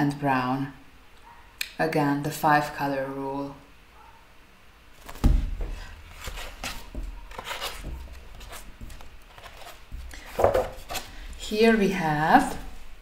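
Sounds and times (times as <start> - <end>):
paper pages rustling: 5.0 - 11.5
book knocked onto wooden table: 5.1 - 5.8, 9.9 - 10.8.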